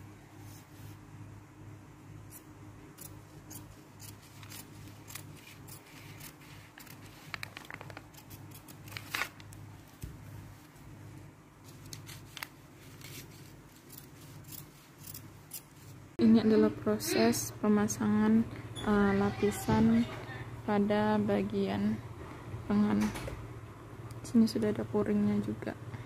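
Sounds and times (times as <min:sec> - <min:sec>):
scissors snipping fabric: 0:02.3 - 0:07.0, 0:13.8 - 0:15.7.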